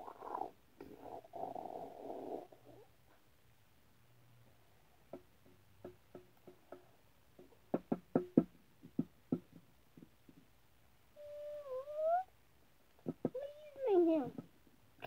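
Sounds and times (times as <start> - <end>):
plastic toys knocking on hard surface: 5.1 - 10.5, 13.0 - 13.5.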